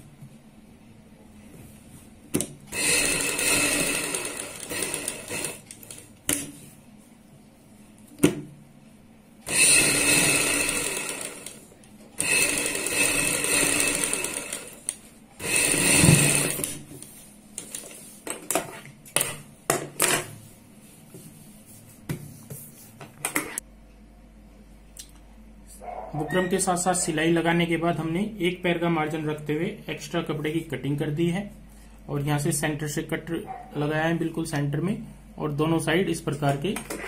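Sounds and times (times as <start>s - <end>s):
sewing machine stitching: 2.7s - 6.1s, 9.5s - 16.8s.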